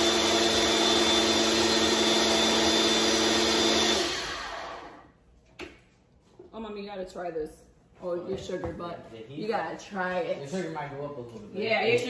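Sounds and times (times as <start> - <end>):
blender motor whirring: 0.0 - 5.0.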